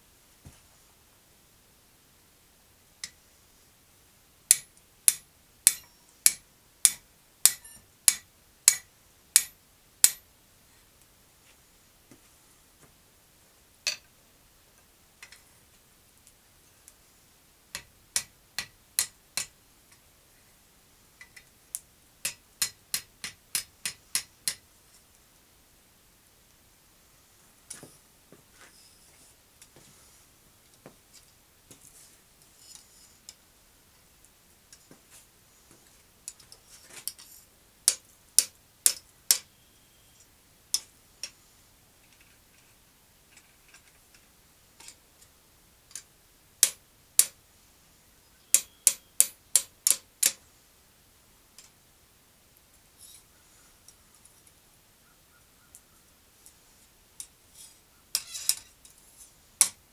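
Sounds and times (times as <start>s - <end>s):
hammer striking iron on anvil: 4.5s - 10.2s.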